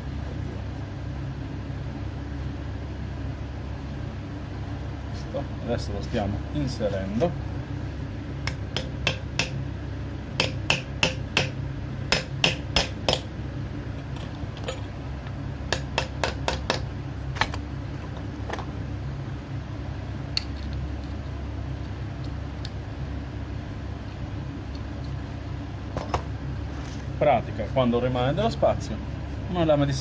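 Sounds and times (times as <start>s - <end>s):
steady low hum: 0.0s - 30.0s
small hammer tapping metal punch: 8.5s - 9.6s, 10.4s - 13.3s.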